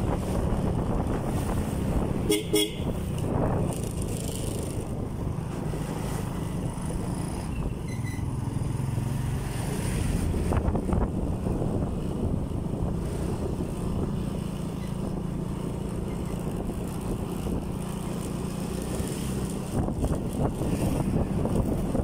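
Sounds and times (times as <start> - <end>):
wind on microphone: 0.0 - 8.0, 9.0 - 22.0
motorcycle engine rumble: 0.0 - 22.0
vehicle horn beeps: 2.3 - 2.9.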